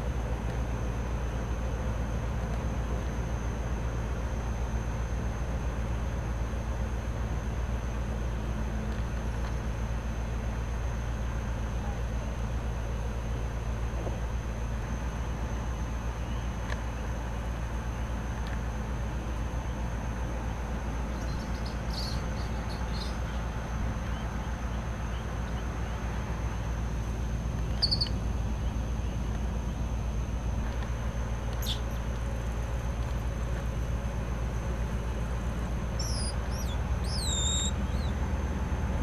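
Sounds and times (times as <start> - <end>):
steady low rumble: 0.0 - 39.0
high chirping animal calls: 21.2 - 23.4, 27.7 - 28.2, 31.6 - 32.1, 35.9 - 38.2.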